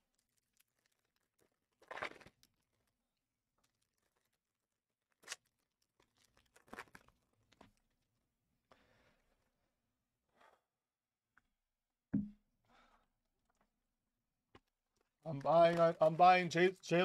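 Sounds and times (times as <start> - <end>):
card pack wrappers crinkling: 0.0 - 2.9.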